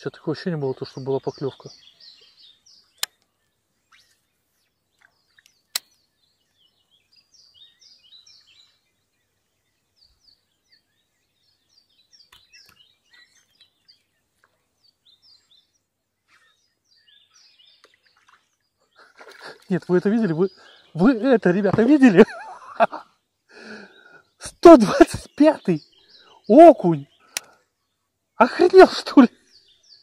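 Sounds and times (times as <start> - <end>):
songbirds chirping and singing: 0.0 - 30.0
sharp clicks: 3.0 - 3.3, 5.4 - 6.0, 27.3 - 27.6.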